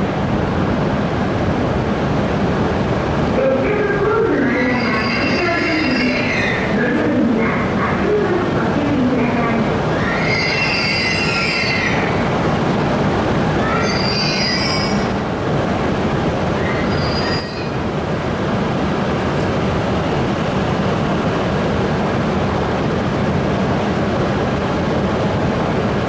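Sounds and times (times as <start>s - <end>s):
train humming: 0.0s - 26.0s
high wheel squeals: 4.5s - 6.7s, 10.0s - 12.0s, 13.6s - 15.2s, 16.6s - 18.0s.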